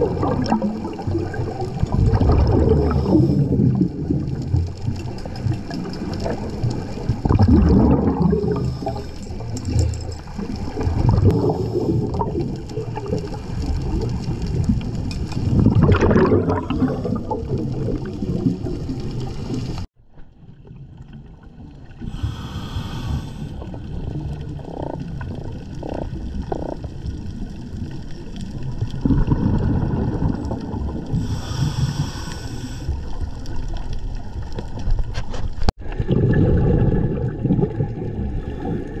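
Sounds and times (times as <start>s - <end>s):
exhaled bubbles rumbling: 0.0s - 39.0s
regulator hiss on inhale: 8.4s - 9.5s, 22.0s - 23.6s, 31.1s - 33.0s.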